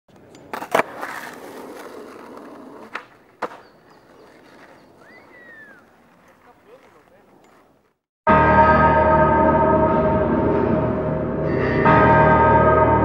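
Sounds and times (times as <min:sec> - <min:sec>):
skateboard clacks: 0:00.1 - 0:07.9
skateboard wheels rolling: 0:00.1 - 0:08.0.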